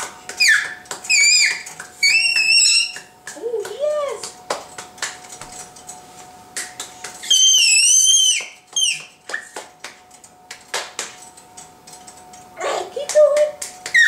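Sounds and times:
baby squealing: 0:00.4 - 0:03.0.

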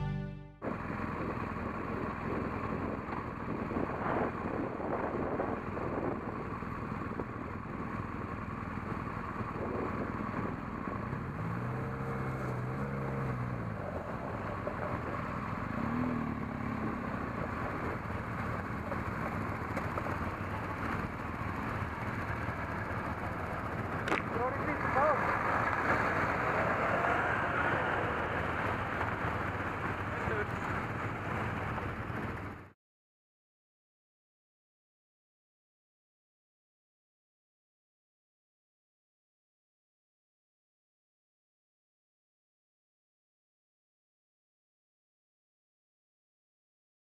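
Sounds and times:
motorcycle engine: 0:00.0 - 0:32.8
wind noise: 0:00.6 - 0:08.0, 0:08.8 - 0:11.5
tyres on gravel: 0:17.5 - 0:32.4.

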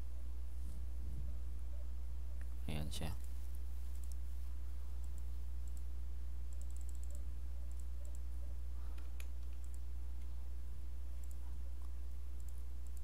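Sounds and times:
steady low hum: 0:00.0 - 0:13.0
mouse clicks: 0:03.9 - 0:04.2, 0:05.0 - 0:05.9, 0:06.5 - 0:08.3, 0:08.9 - 0:10.3, 0:11.2 - 0:13.0.

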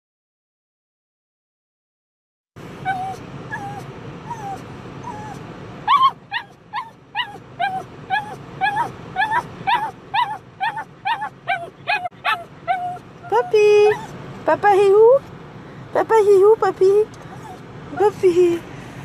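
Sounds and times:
dog whining: 0:02.8 - 0:14.2, 0:17.2 - 0:18.2.

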